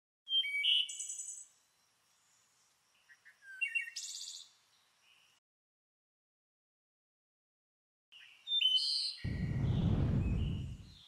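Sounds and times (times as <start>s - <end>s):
songbirds chirping and trilling: 0.3s - 5.4s, 8.1s - 11.0s.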